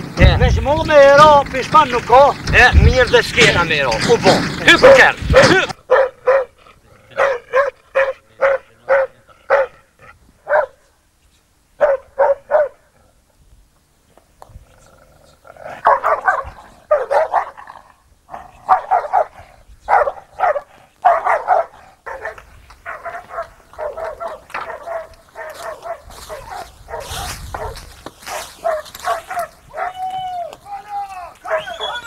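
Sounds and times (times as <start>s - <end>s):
dog barking: 4.8s - 10.8s, 11.8s - 12.8s, 15.8s - 17.6s, 18.6s - 30.0s, 31.4s - 32.0s
branches rustling and crackling: 19.9s - 32.0s.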